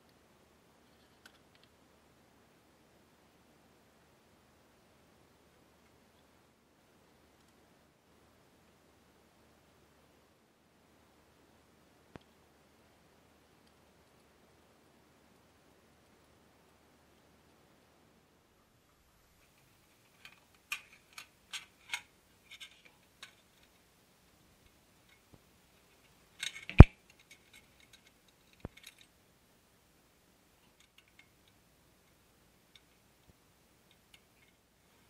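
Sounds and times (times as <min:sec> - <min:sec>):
metal parts clicking and clinking: 0:19.9 - 0:23.8, 0:25.9 - 0:29.1.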